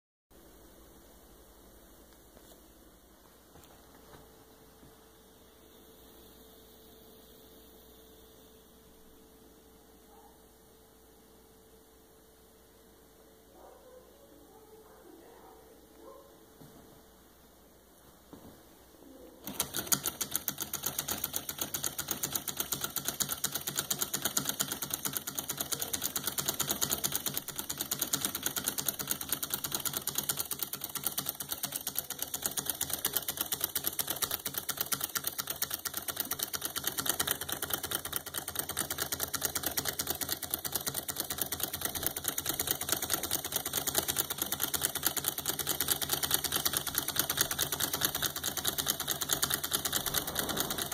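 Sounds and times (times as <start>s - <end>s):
small engine ticking rhythmically: 19.4s - 50.9s.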